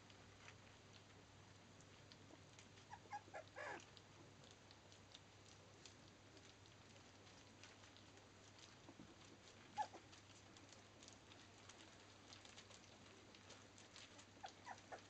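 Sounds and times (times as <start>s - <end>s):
pups licking food from dish: 0.0s - 15.0s
puppies whimpering squeaks: 2.9s - 3.8s, 9.8s - 10.0s, 14.4s - 15.0s.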